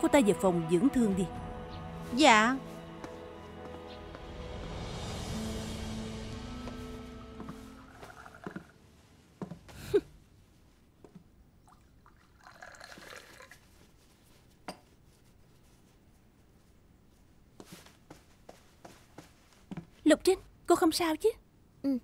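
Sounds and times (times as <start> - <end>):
background music: 0.0 - 8.8.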